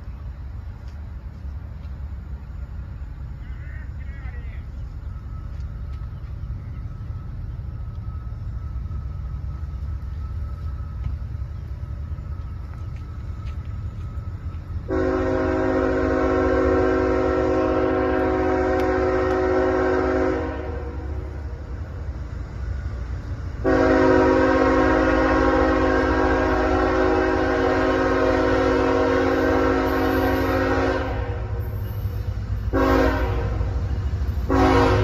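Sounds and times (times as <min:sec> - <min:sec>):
low steady rumble: 0:00.0 - 0:30.0
locomotive air horn: 0:14.8 - 0:21.4, 0:23.6 - 0:35.0.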